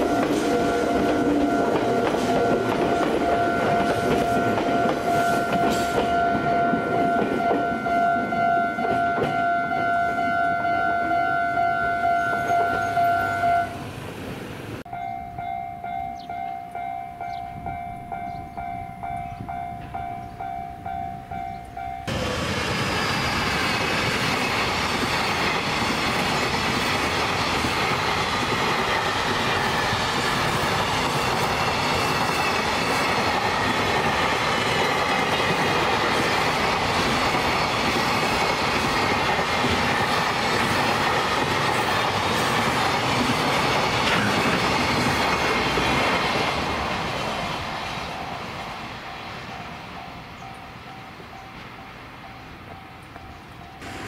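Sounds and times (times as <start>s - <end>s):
level-crossing bell ringing: 0.0s - 13.8s, 14.9s - 22.2s
freight train rumbling past: 0.0s - 54.0s.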